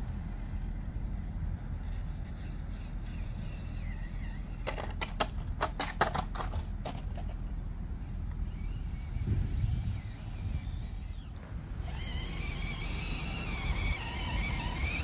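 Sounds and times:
toy car clattering against rock: 3.1 - 7.4, 9.9 - 15.0.

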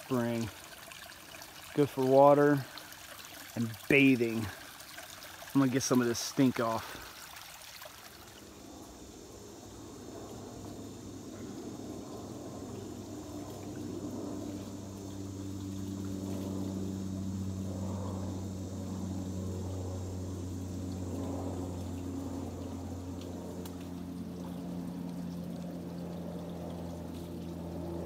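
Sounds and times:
water pouring and splashing: 0.0 - 8.5
steady low hum: 8.0 - 28.0.

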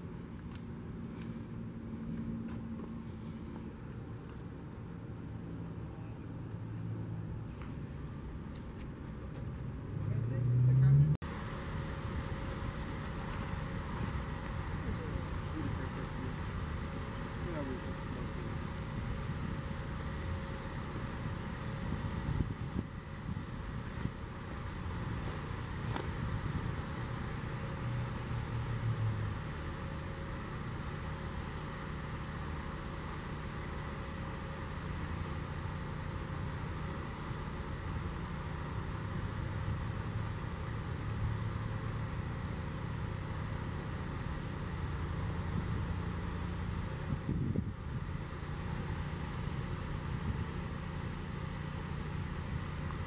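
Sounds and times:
cars driving past: 9.1 - 16.8.

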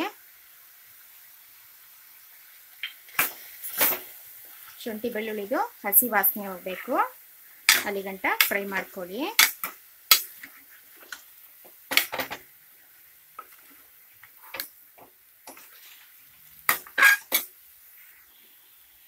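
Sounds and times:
chicken frying: 0.0 - 19.0
metal ladle scraping a pot: 16.7 - 17.5.

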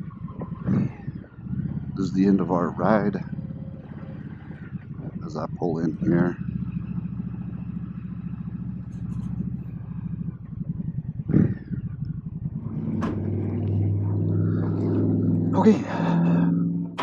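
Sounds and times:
motorcycle engine running: 0.0 - 17.0.

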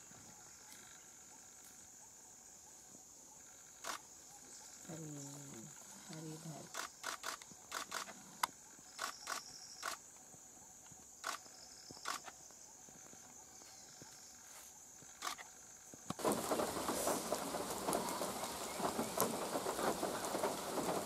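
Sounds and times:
sharp clicks: 6.7 - 10.0
heavy rain: 16.2 - 21.0.

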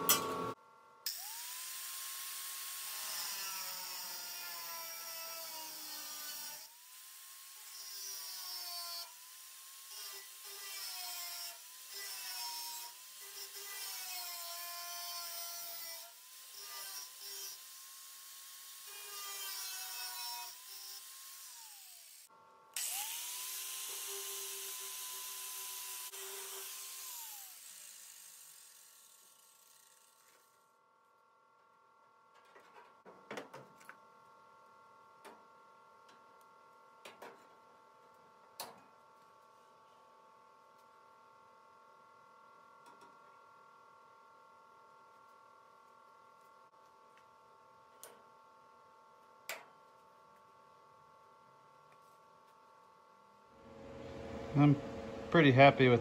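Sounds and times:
grinder whining on sheet metal: 9.9 - 30.5, 53.6 - 56.0.

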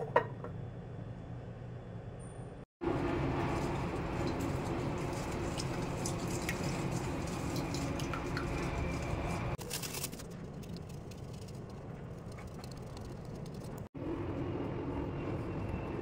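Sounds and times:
batter stirred in metal bowl: 3.1 - 11.5.

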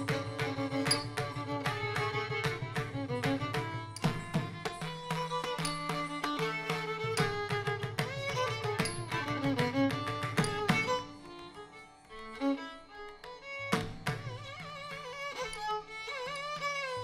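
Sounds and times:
violin melody: 0.0 - 17.0.

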